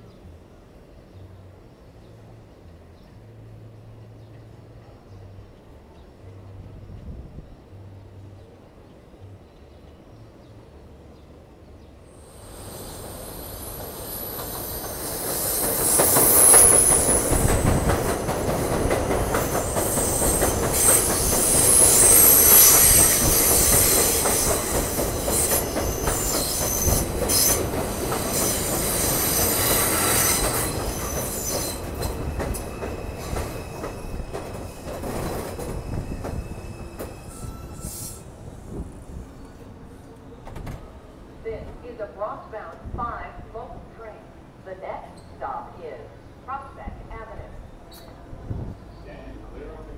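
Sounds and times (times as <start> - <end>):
wheels rumbling on track: 0.1 - 42.4
train wheels squealing on rails: 12.1 - 41.4, 45.1 - 45.4, 47.6 - 49.2.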